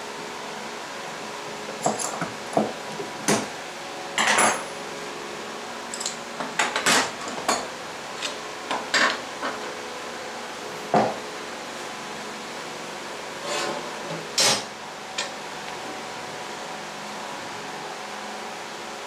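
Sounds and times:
short scrape on steel: 0:13.4 - 0:13.9.

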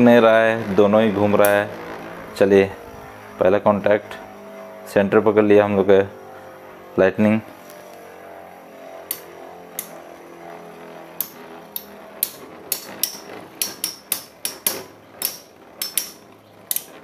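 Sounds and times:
spinning tops whirring: 0:00.0 - 0:17.0.

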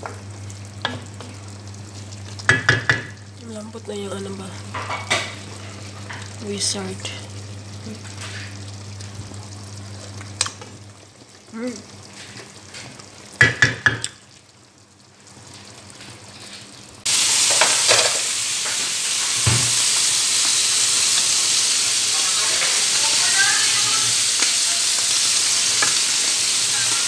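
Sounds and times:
food sizzling in pan: 0:00.0 - 0:27.0
wooden spoon knocking pan: 0:02.4 - 0:03.2, 0:13.4 - 0:14.2.

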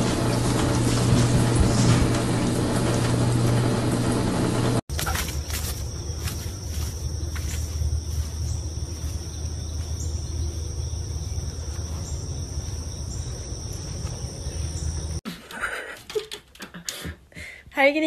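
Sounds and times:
insects trilling: 0:04.9 - 0:15.2.

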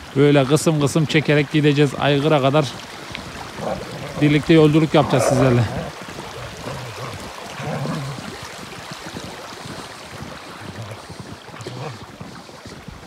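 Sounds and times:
shallow creek running: 0:00.0 - 0:13.0
wind on microphone: 0:03.2 - 0:13.0.

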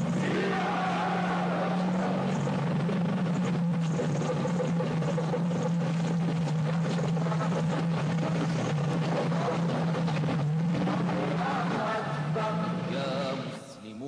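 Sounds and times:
vehicle engine running: 0:00.0 - 0:13.6.

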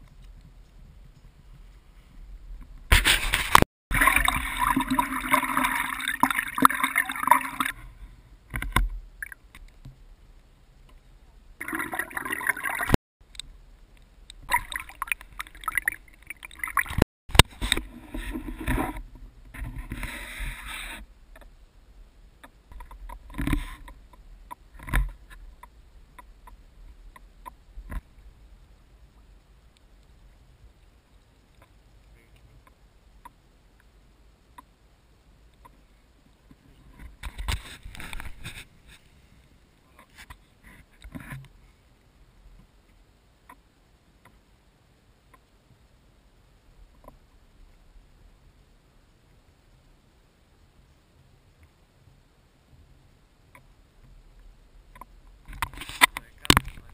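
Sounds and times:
paddle strokes: 0:00.0 - 0:10.0, 0:14.3 - 0:21.5, 0:35.6 - 0:42.0, 0:54.9 - 0:56.9
water rushing past a canoe: 0:02.9 - 0:09.9, 0:11.6 - 0:13.0, 0:14.4 - 0:21.1.

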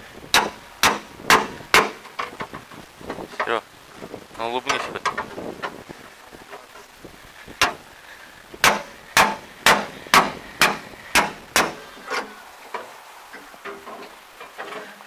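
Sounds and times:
knocks on metal tractor cab: 0:00.3 - 0:02.6, 0:08.6 - 0:11.8.

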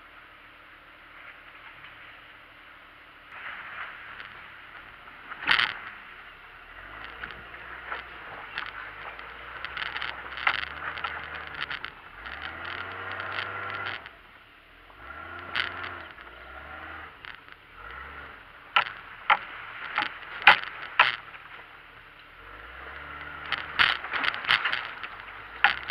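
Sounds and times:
vehicle engine revving: 0:03.2 - 0:25.9
tyres crunching and splashing: 0:03.3 - 0:14.3, 0:15.0 - 0:25.9
vehicle knocks and clunks: 0:17.2 - 0:21.8.

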